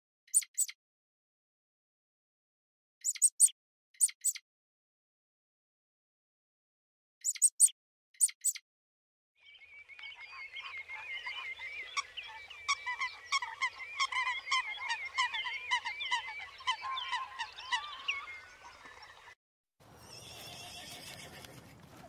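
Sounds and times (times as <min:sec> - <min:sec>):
flock of birds chirping: 0:09.4 - 0:19.4.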